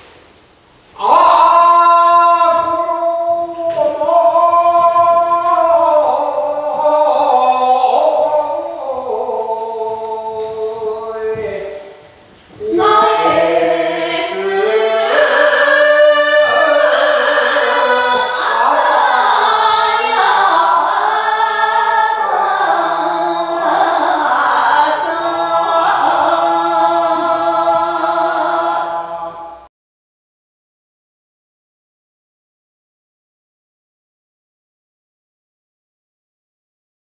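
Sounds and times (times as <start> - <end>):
folk singing with held notes: 0.9 - 29.7.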